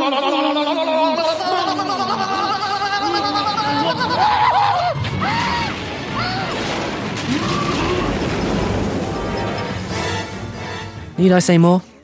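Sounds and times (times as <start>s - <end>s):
crashing booming sound effects: 4.8s - 10.5s
soundtrack music: 5.8s - 12.0s.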